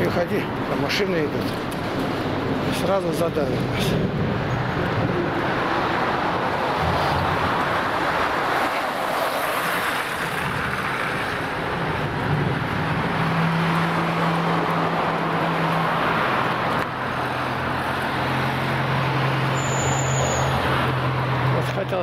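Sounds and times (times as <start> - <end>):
highway traffic rushing: 0.0 - 22.0.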